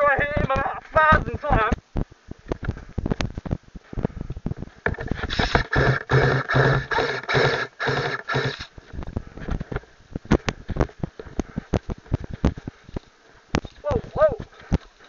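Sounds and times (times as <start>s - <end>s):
airsoft rifle firing bursts: 5.5s - 8.7s.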